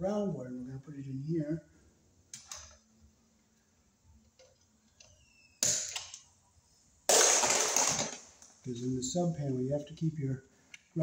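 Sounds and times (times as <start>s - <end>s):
faint squeak: 5.1s - 5.6s.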